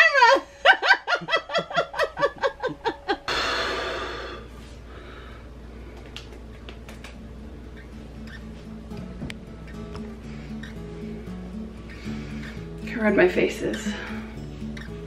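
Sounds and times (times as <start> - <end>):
woman laughing hard: 0.0 - 3.3.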